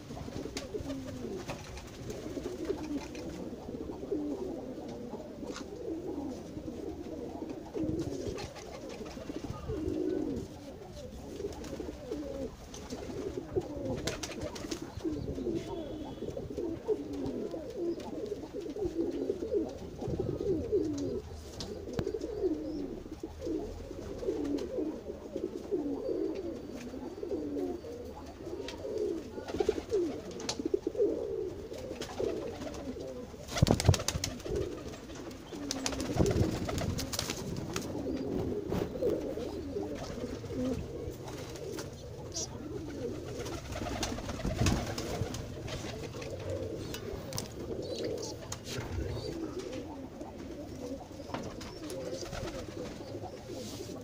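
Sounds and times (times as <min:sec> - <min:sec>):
pigeons cooing: 0:00.0 - 0:54.0.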